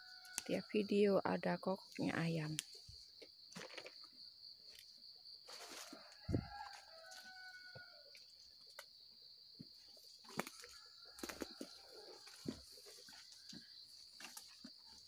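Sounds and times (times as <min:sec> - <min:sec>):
high insect chirr: 0:00.0 - 0:15.0
rooster crowing: 0:05.6 - 0:08.1.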